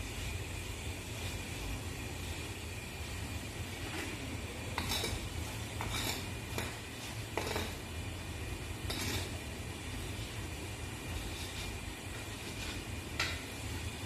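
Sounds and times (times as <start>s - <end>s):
steady low hum: 0.0s - 14.0s
metal skimmer scraping pot: 4.7s - 7.8s, 8.8s - 9.4s.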